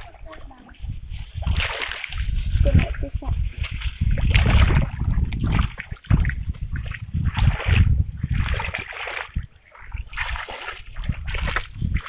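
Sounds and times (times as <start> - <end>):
muddy water splashing and sloshing: 0.0 - 12.0.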